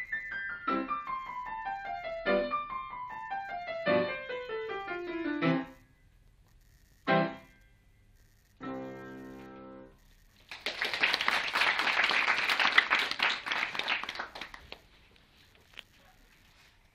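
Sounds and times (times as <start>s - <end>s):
audience applause: 10.4s - 14.9s.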